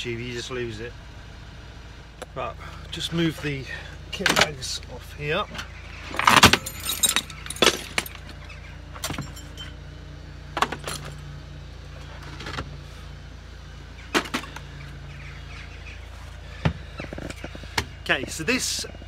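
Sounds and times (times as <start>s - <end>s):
steady low hum: 0.0s - 19.0s
metal tools knocking and clinking: 6.2s - 8.4s, 9.0s - 9.8s.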